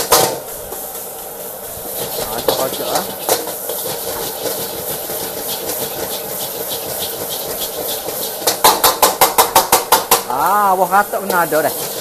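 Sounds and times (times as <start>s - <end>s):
fried rice sizzling in a wok: 0.0s - 12.0s
metal spatula striking a wok: 2.0s - 10.4s.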